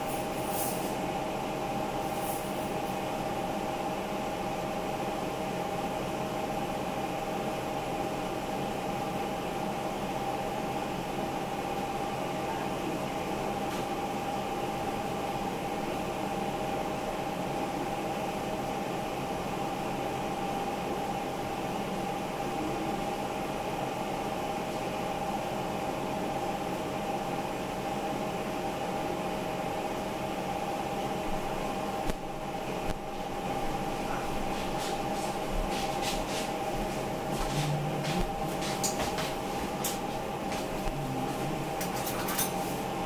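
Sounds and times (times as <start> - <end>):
appliance fan whirring hum: 0.0 - 43.0.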